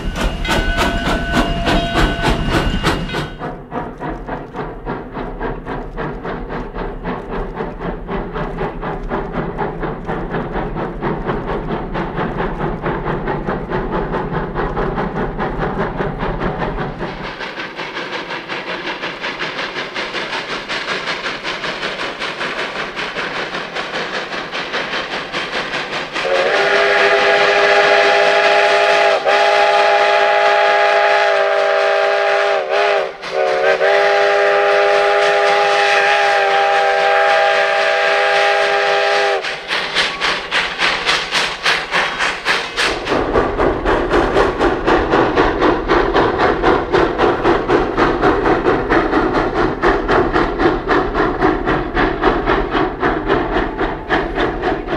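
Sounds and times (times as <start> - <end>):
steam locomotive exhaust chuffs: 0.0 - 54.9
steam whistle blast: 26.2 - 39.7.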